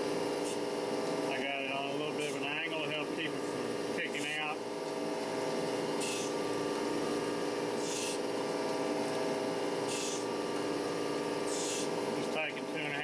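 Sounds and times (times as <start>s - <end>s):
steady motor hum: 0.0s - 13.0s.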